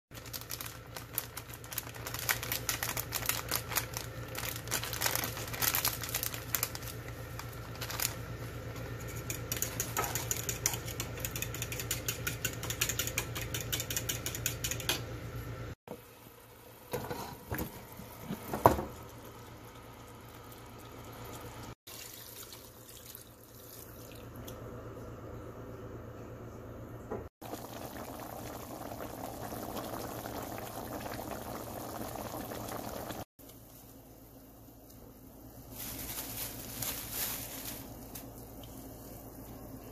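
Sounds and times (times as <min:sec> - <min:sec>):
curry simmering and bubbling: 0:27.4 - 0:33.3.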